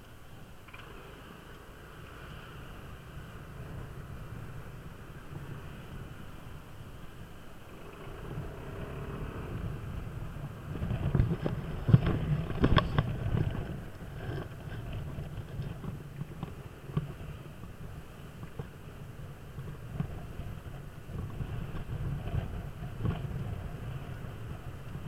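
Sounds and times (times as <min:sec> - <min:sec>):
scooter engine running: 0:00.0 - 0:25.0
wind rushing over microphone: 0:01.1 - 0:25.0.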